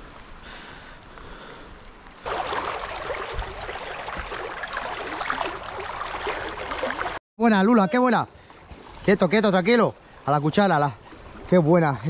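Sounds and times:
river water rushing over stones: 0:02.2 - 0:07.2.

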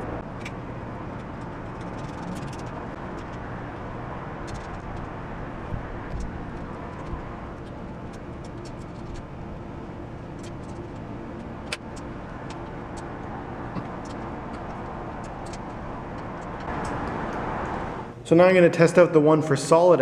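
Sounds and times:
steady background rumble: 0:00.0 - 0:20.0
light metal clicks and ticks: 0:13.7 - 0:17.0.

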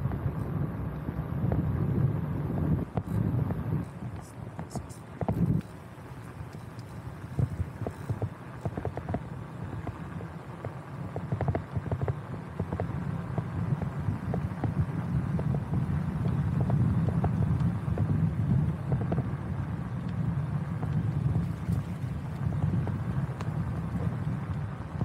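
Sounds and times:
low engine drone: 0:00.0 - 0:25.0.

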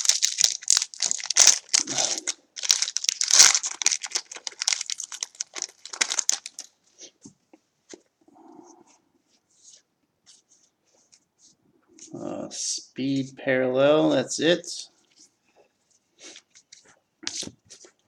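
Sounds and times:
wrapper crinkling and tearing: 0:00.0 - 0:06.8.

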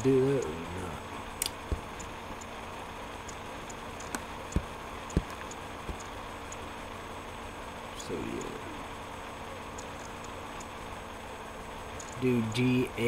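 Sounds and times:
steady background hiss: 0:00.0 - 0:13.0
faint high ticks: 0:01.4 - 0:02.5, 0:03.2 - 0:06.7, 0:09.7 - 0:10.8, 0:11.9 - 0:12.3
sharp clicks: 0:01.4 - 0:02.5, 0:03.2 - 0:06.7, 0:09.7 - 0:10.8, 0:11.9 - 0:12.2
soft low thumps: 0:01.6 - 0:02.5, 0:04.0 - 0:06.6.

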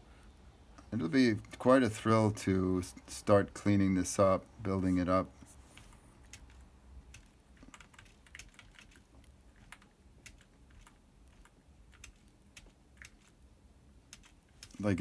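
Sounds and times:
keyboard keys clicking: 0:05.8 - 0:13.4, 0:14.1 - 0:15.0.

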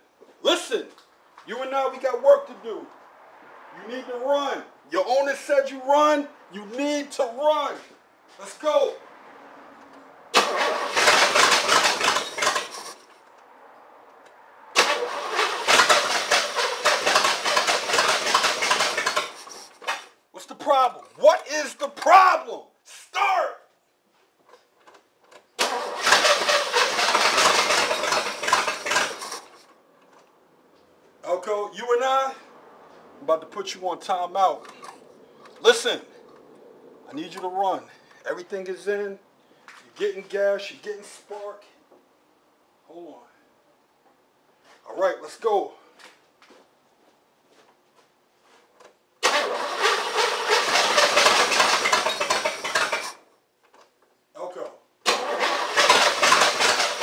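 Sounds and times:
starter cranking engine: 0:10.4 - 0:13.2, 0:14.8 - 0:20.1, 0:24.8 - 0:30.3, 0:49.2 - 0:53.3, 0:55.0 - 0:57.0.

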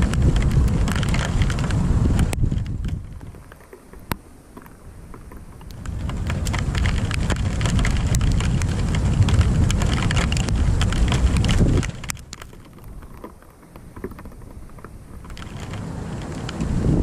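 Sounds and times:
thunder rumbling: 0:00.0 - 0:03.3, 0:05.7 - 0:13.1
rain: 0:00.0 - 0:17.0
sharp raindrop ticks: 0:00.0 - 0:17.0.

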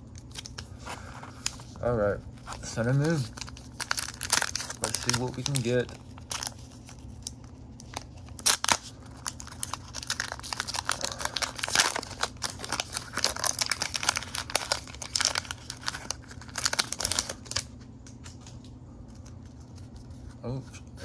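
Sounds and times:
foil wrapper crinkling: 0:00.2 - 0:17.8
foil wrapper ripping: 0:02.5 - 0:17.7.

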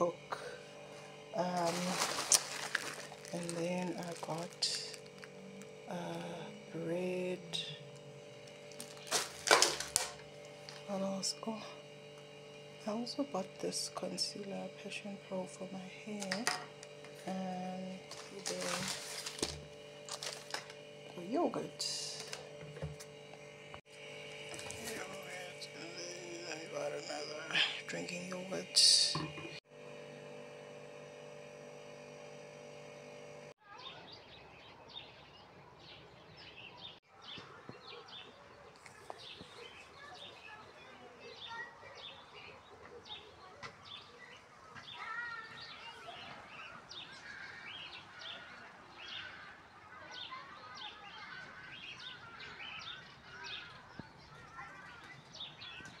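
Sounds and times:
steady hum: 0:00.0 - 0:33.6
faint outdoor background noise: 0:33.6 - 0:56.0
birds chirping and singing: 0:33.7 - 0:56.0.

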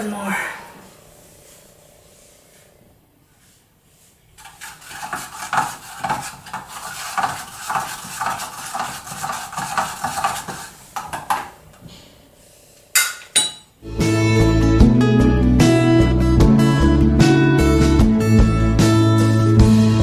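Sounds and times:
stirrer scraping and clinking container: 0:04.4 - 0:11.4.

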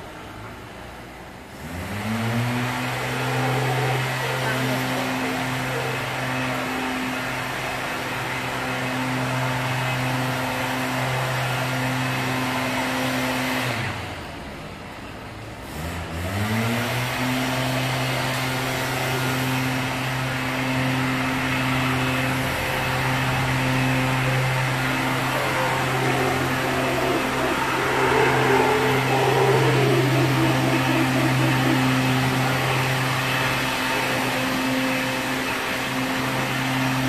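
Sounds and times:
howler monkeys roaring: 0:02.6 - 0:07.3, 0:18.5 - 0:37.0.

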